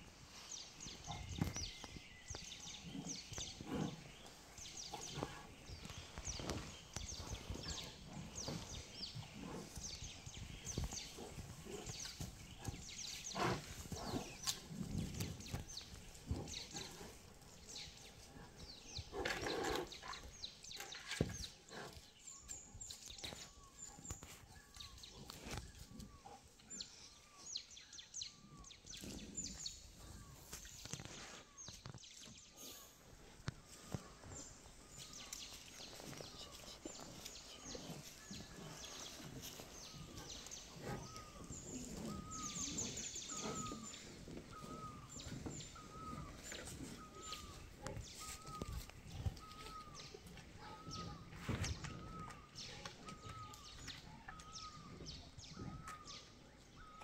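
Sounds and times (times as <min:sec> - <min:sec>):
small birds chirping: 0:00.0 - 0:57.0
rustling and crackling leaves: 0:33.4 - 0:54.5.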